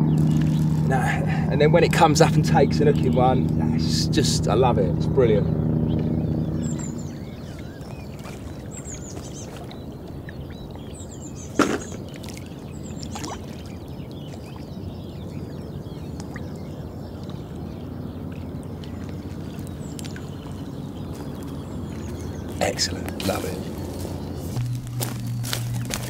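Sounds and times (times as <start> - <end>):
low rumble: 0.0 - 8.7, 21.5 - 26.0.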